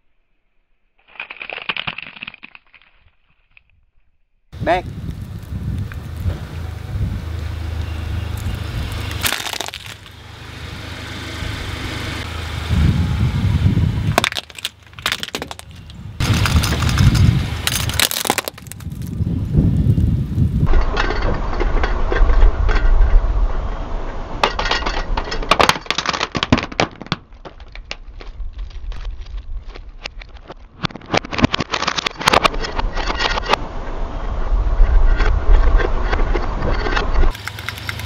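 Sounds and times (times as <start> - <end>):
tyres crunching objects on dirt: 4.9 - 11.2, 14.0 - 21.5, 24.4 - 33.6
car running: 5.0 - 28.6, 32.0 - 38.0.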